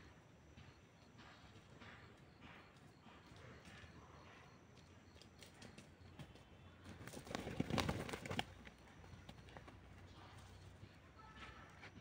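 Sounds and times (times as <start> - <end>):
pigeon wings flapping: 7.0 - 8.6.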